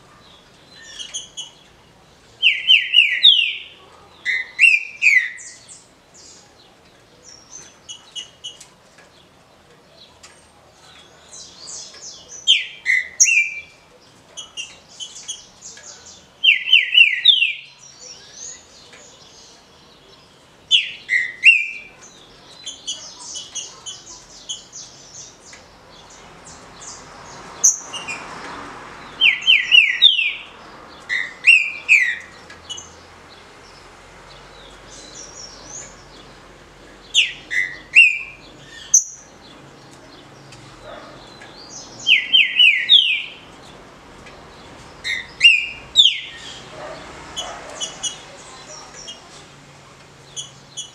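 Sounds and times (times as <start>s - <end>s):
bird whistling song: 2.4s - 3.7s, 4.3s - 5.6s, 12.5s - 13.8s, 16.4s - 17.7s, 20.8s - 21.8s, 29.2s - 30.5s, 31.1s - 32.2s, 37.2s - 39.2s, 42.0s - 43.4s, 45.1s - 46.5s.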